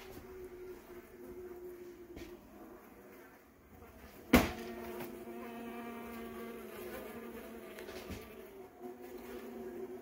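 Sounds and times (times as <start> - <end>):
honeybees buzzing: 0.0 - 10.0
sharp knock: 4.3 - 4.6.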